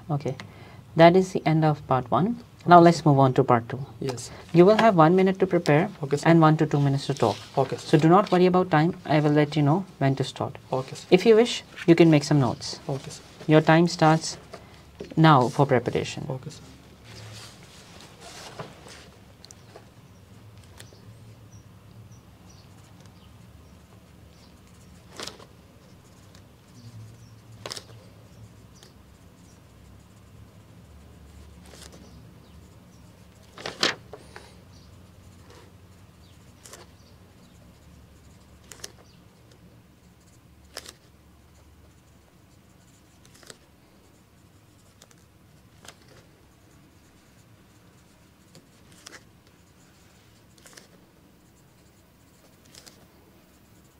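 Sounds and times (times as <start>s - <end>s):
faint low room hum: 0.0s - 53.9s.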